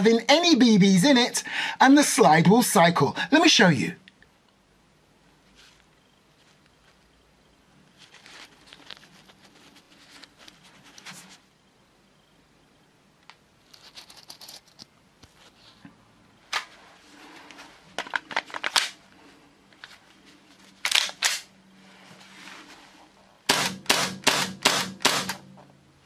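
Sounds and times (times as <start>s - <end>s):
airsoft pistol firing crack: 23.5s - 25.5s.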